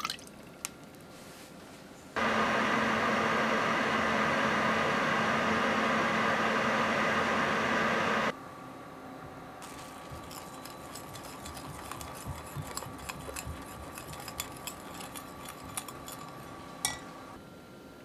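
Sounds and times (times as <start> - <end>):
whisk ticking against glass: 9.6 - 16.5
whisk clinking against jug: 9.6 - 17.1.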